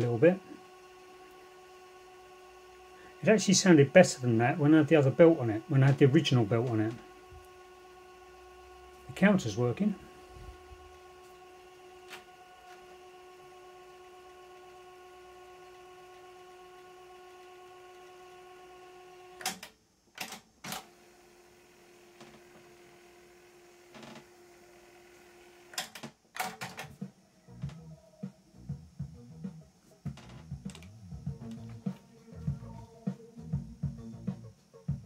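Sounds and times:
cassette deck motor whine: 0.0 - 35.0
music from tape: 26.6 - 35.0.

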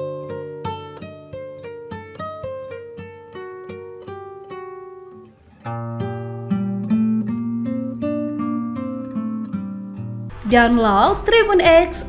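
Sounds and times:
music with picked notes melody: 0.0 - 10.4.

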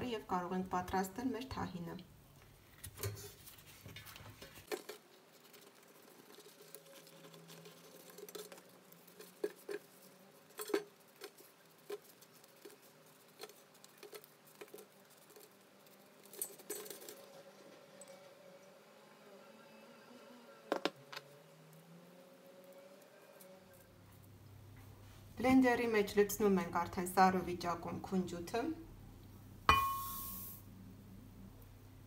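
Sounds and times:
papery rustle of bread: 2.6 - 17.7.

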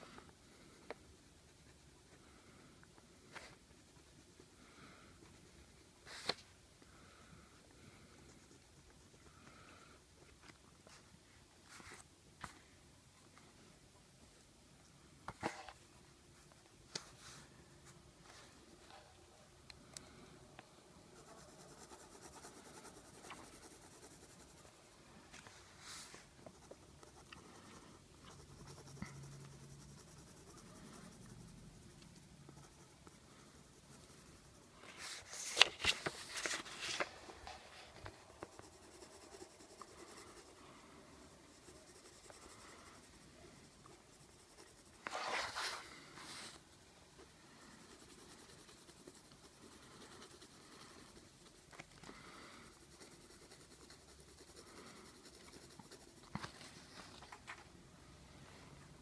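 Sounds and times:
colored pencil scratching on paper: 0.0 - 12.1, 20.8 - 57.4
rapid pencil scribbling: 0.5 - 6.4, 7.8 - 10.3, 21.0 - 25.0, 25.7 - 57.2.

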